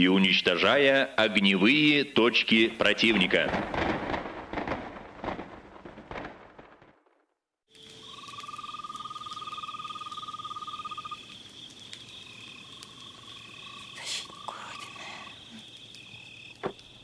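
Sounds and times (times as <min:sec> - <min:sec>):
insects buzzing: 0:07.7 - 0:17.0
frog trilling: 0:08.1 - 0:11.3.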